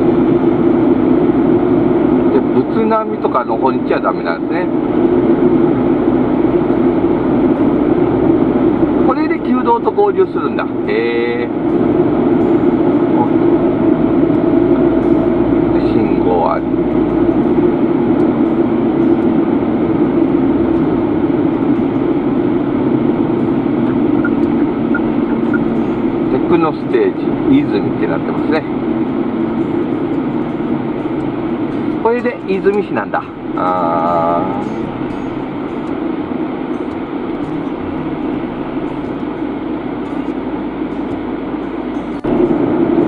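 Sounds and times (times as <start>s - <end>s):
car road and engine noise: 0.0s - 43.0s.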